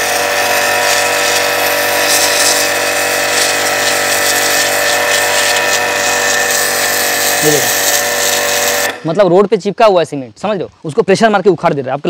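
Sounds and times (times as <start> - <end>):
pressure washer motor whine: 0.0 - 9.3
water jet hissing on concrete: 0.0 - 9.4.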